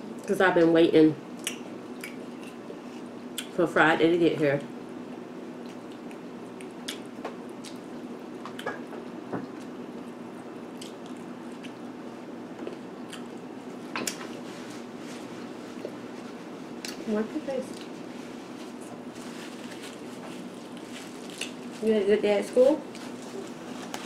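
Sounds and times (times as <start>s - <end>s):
low background hum: 0.0s - 24.0s
wet chewing and lip smacks: 1.4s - 2.6s, 5.6s - 8.7s, 10.8s - 11.9s.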